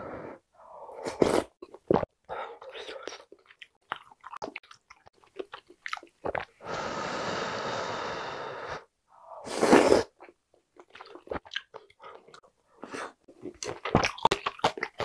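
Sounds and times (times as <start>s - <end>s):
breathy blowing: 6.6s - 10.1s
loud slurp of broth: 9.5s - 10.1s
wet chewing: 13.4s - 15.0s.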